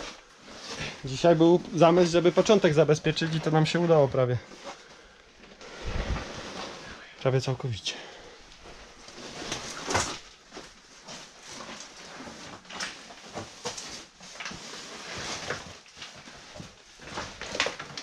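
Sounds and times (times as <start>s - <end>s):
people moving over rock rubble: 0.0s - 6.8s.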